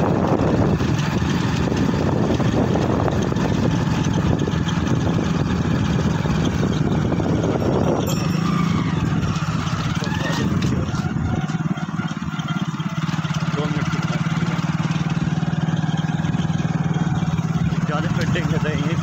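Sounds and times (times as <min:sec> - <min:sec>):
wind rumble on microphone: 0:00.0 - 0:08.1
motorbike engine running: 0:00.0 - 0:19.0.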